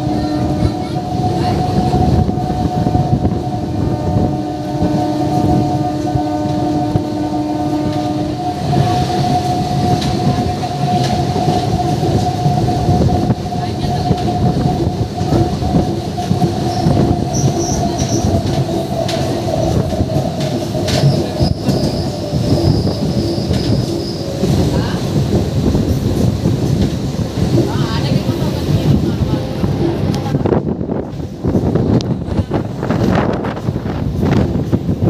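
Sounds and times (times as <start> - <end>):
train horn: 0.0 - 24.2
train wheels clacking on rails: 0.0 - 35.0
train whining tone: 0.0 - 35.0.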